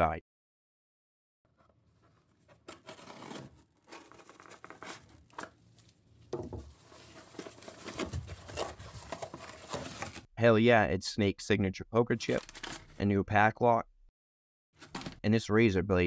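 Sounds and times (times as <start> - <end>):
cardboard scraping and tearing: 2.0 - 5.8, 6.5 - 10.3.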